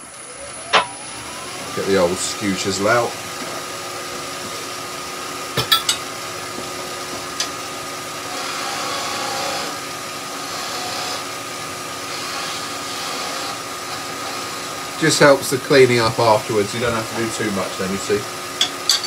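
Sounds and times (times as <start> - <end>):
chisel cutting spinning wood: 0.0 - 18.9
wood lathe motor hum: 0.0 - 19.0
tools knocking together: 5.6 - 6.0, 18.6 - 19.0.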